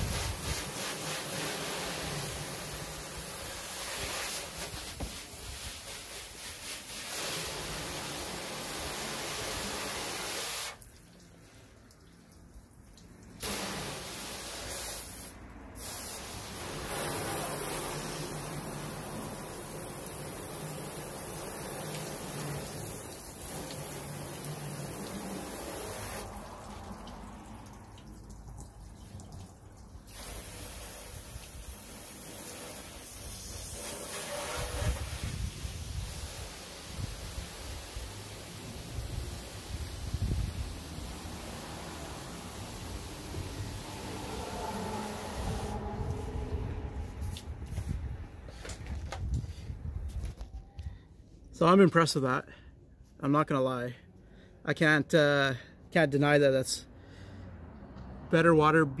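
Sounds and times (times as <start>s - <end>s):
hose spraying water on car: 0.0s - 48.7s.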